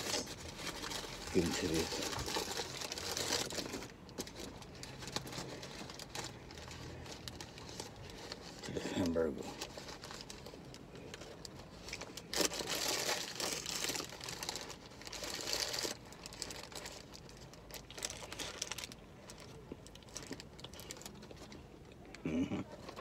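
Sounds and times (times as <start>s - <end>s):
paper wrapper crinkling: 0.0s - 22.1s.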